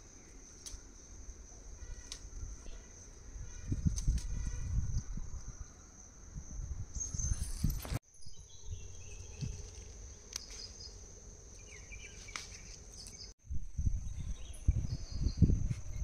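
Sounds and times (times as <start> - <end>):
insects trilling: 0.0 - 13.3
bird chirps: 6.9 - 13.4.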